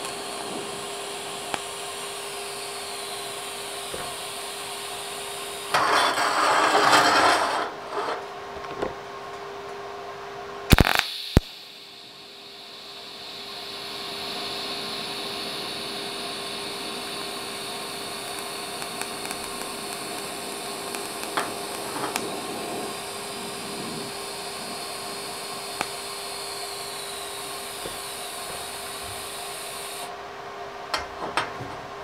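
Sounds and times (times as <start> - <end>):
welding arc hissing buzz: 0.0 - 8.4, 10.7 - 30.2
welding arc cracks: 10.7 - 11.8, 16.0 - 30.1.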